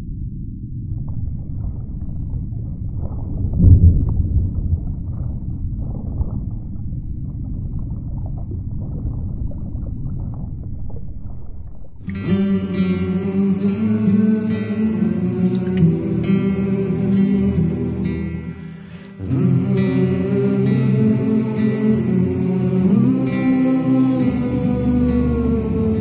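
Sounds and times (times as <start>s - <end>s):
low rumbling noise: 0.0s - 26.0s
acoustic guitar music: 12.0s - 26.0s.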